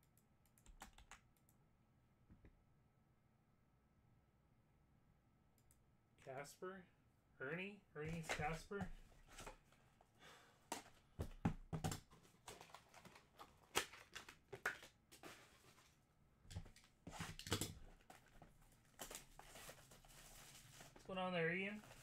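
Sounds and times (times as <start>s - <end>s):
cards clicking and rustling on table: 8.1s - 9.6s.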